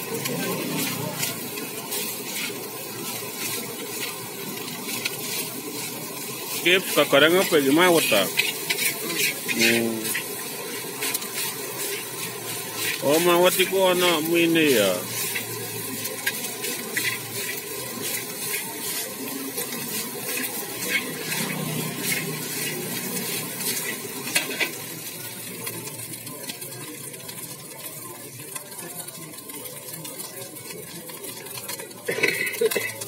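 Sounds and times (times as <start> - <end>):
metal spatula scraping a pan: 0.0 - 25.0
food sizzling in a wok: 0.0 - 33.0.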